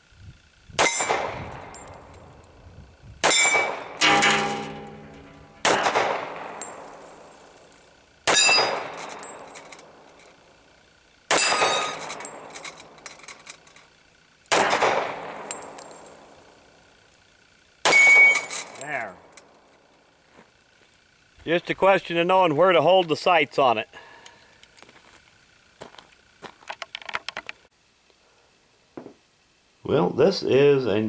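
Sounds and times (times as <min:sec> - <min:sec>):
pistol shots: 0:00.8 - 0:01.7, 0:03.2 - 0:07.3, 0:08.3 - 0:09.5, 0:11.3 - 0:12.6, 0:14.5 - 0:16.3, 0:17.8 - 0:18.8
steel plate target ringing: 0:00.8 - 0:02.2, 0:03.2 - 0:07.6, 0:08.3 - 0:10.0, 0:11.3 - 0:13.1, 0:14.6 - 0:16.5, 0:17.8 - 0:19.4.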